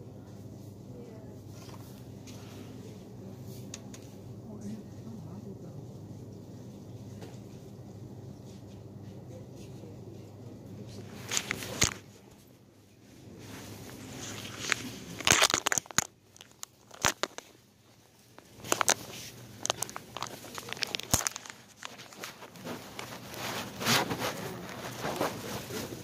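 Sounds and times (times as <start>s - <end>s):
phone rubbing against clothing: 21.7s - 26.0s.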